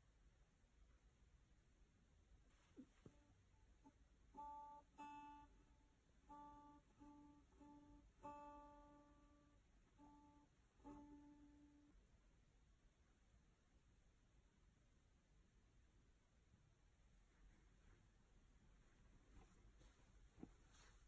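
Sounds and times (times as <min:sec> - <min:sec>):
acoustic guitar notes plucked: 0:02.8 - 0:12.0.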